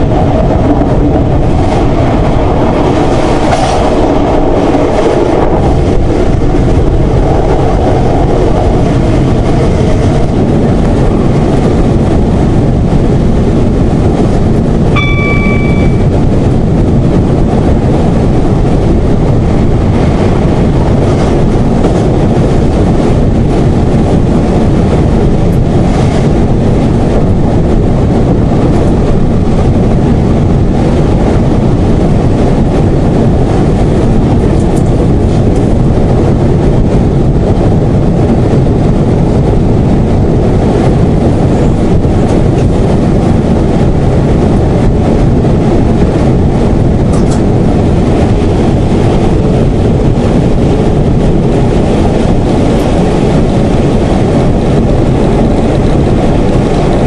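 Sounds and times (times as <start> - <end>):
train engine and wheels on rails: 0.0 - 57.0
short chime: 15.0 - 16.2.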